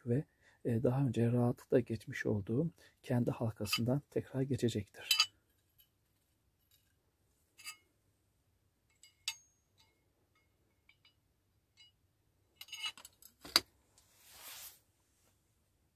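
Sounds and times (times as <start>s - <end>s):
metal ball clinking on steel ring: 5.0s - 5.4s, 8.9s - 11.2s.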